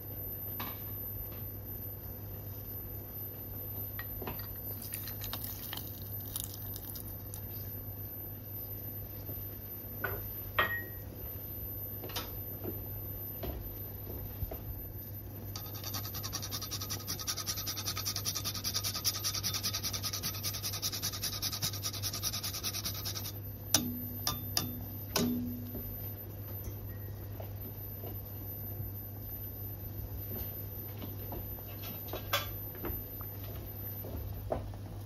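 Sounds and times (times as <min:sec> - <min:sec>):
nutmeg rasping on a grater: 0:15.6 - 0:23.4
sharp knocks: 0:23.8 - 0:25.9.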